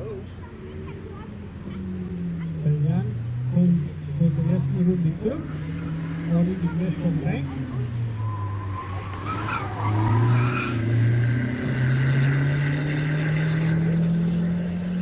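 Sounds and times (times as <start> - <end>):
car engine under load: 0.0 - 15.0
tyres squealing: 7.5 - 11.5.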